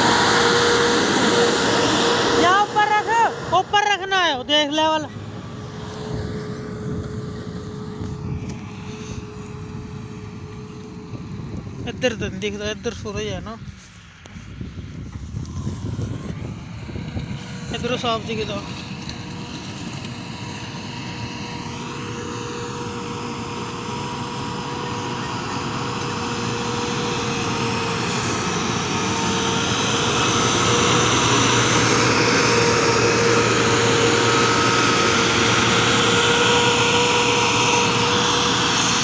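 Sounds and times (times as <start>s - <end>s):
diesel engine running under load: 0.0s - 39.0s.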